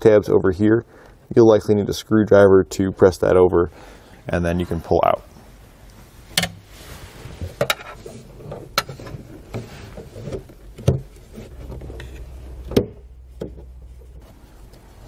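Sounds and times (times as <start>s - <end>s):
rustling of wires: 5.0s - 15.0s.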